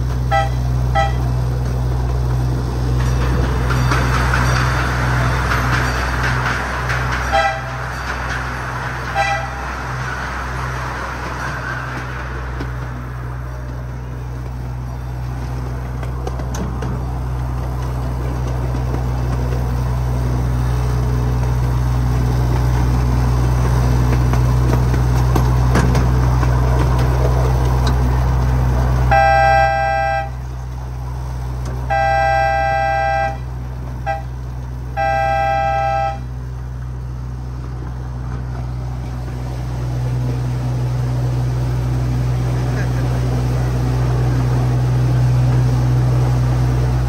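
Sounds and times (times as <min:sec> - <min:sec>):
miniature train droning: 0:00.0 - 0:47.0
two-note train horn: 0:00.3 - 0:01.4, 0:07.3 - 0:07.8, 0:09.0 - 0:09.7, 0:29.1 - 0:30.4, 0:31.8 - 0:36.4.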